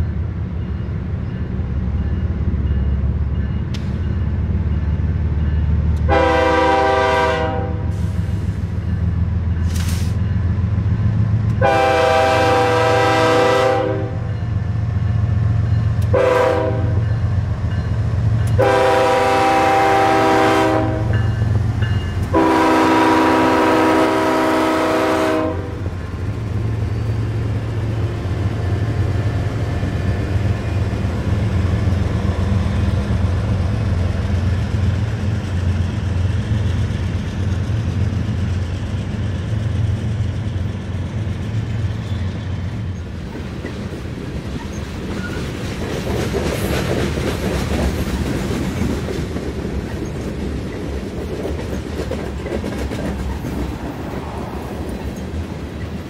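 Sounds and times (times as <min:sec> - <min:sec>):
locomotive rumble: 0:00.0 - 0:56.0
train wheels rolling on rails: 0:00.0 - 0:56.0
locomotive air horn blasts: 0:06.1 - 0:08.2, 0:11.6 - 0:14.3, 0:16.1 - 0:17.1, 0:18.6 - 0:21.3, 0:22.3 - 0:25.9.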